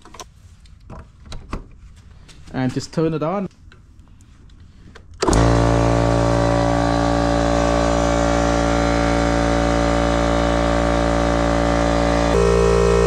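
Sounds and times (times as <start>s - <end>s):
air compressor running: 5.2s - 13.0s.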